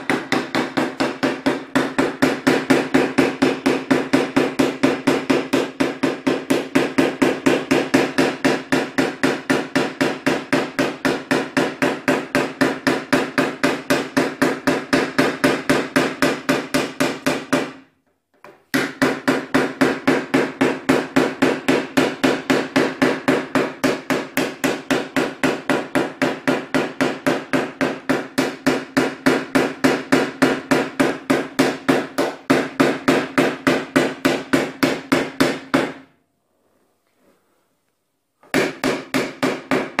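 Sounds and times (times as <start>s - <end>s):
hammer tapping metal punch: 18.4s - 36.1s.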